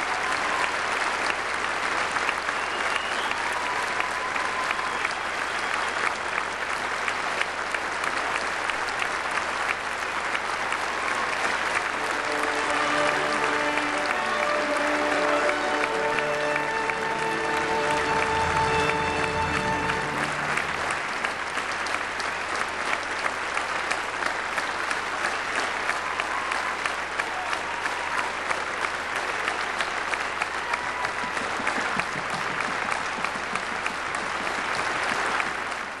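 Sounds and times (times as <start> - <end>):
audience applauding: 0.0 - 36.0
music: 11.8 - 21.3.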